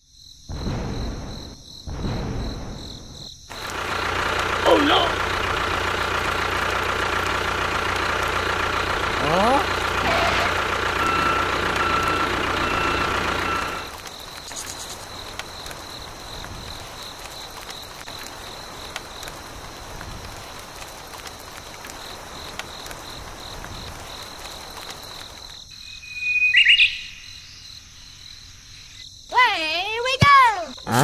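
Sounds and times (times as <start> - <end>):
rain hiss: 2.0 - 26.0
tractor engine running: 3.5 - 25.5
insect chirring: 13.4 - 31.0.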